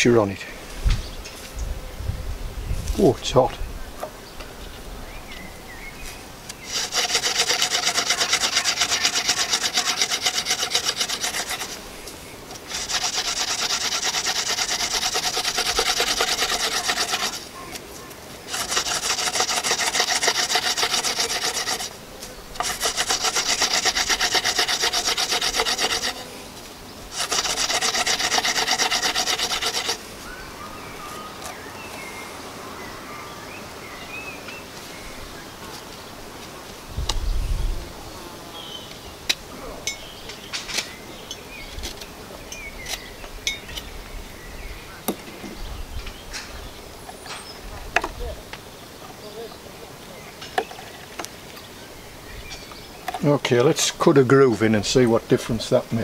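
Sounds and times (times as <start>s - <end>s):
wooden spindle grinding on hearth board: 6.5s - 17.8s, 18.5s - 26.3s, 27.1s - 30.1s.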